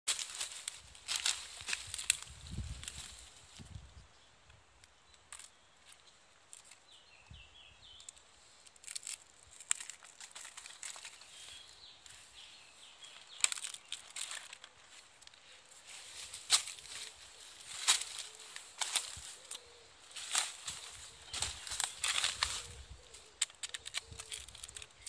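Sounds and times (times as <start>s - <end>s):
scraping and crackling handling noises: 0.1s - 3.6s, 8.0s - 12.4s, 13.0s - 25.0s
small bird chirping: 1.6s - 25.0s.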